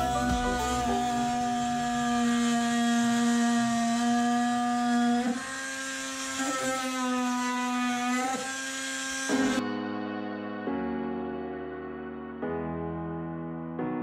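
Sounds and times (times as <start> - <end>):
cordless drill drilling into metal: 0.0 - 9.6.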